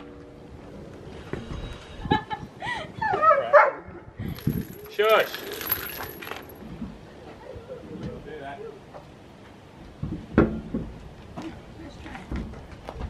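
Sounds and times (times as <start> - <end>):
metallic clinks on concrete: 4.2 - 6.6.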